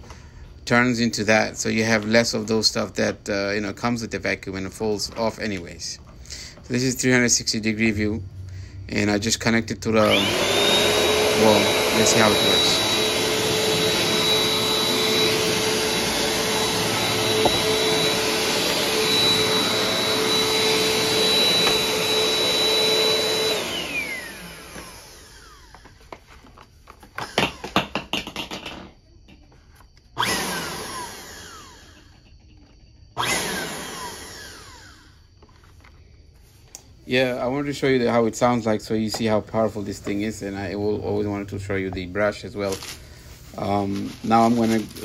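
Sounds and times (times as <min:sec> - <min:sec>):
vacuum cleaner motor whining: 0:08.8 - 0:27.9, 0:29.4 - 0:45.0.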